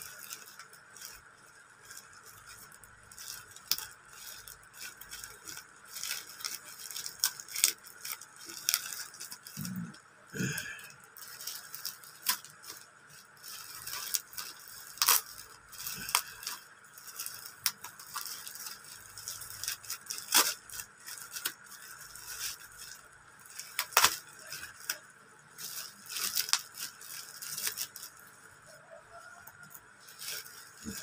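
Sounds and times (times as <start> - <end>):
plastic packaging crinkling and tearing: 0.0 - 31.0.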